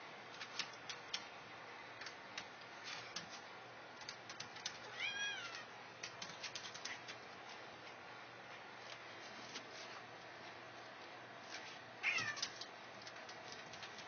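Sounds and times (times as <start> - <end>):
cat meowing: 4.9 - 5.7, 12.0 - 12.5.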